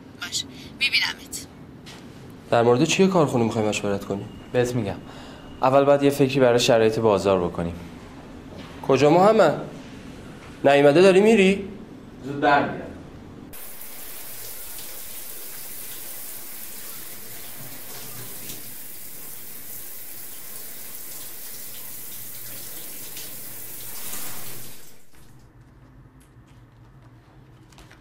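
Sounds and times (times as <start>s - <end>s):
shower water spraying: 13.6s - 25.5s.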